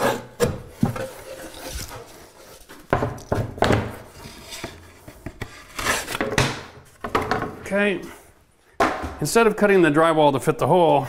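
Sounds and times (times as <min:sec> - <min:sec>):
knife scraping through drywall: 0:00.0 - 0:02.9, 0:04.1 - 0:06.2.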